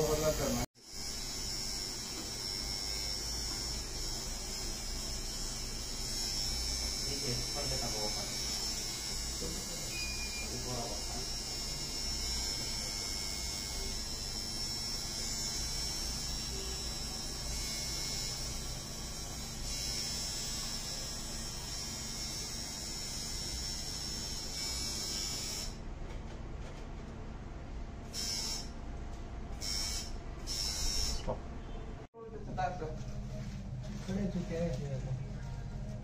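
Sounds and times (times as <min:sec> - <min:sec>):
small motor buzzing hum: 0:00.0 - 0:25.8, 0:28.1 - 0:28.8, 0:29.6 - 0:31.4.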